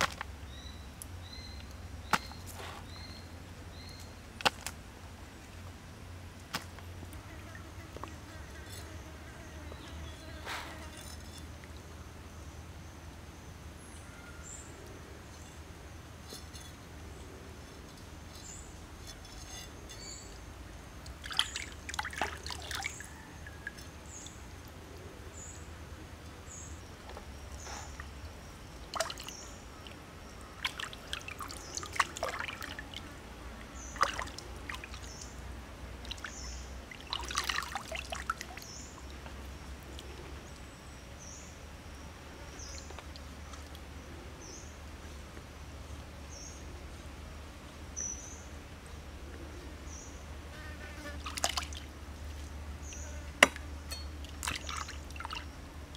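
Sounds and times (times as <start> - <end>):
water splashing and trickling: 21.0 - 24.8, 26.2 - 40.8, 42.6 - 44.0, 51.2 - 55.9.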